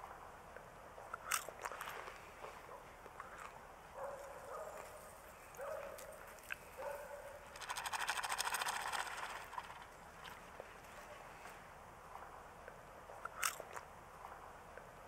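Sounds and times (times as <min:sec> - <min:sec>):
salt shaker rattling: 0:07.5 - 0:09.9.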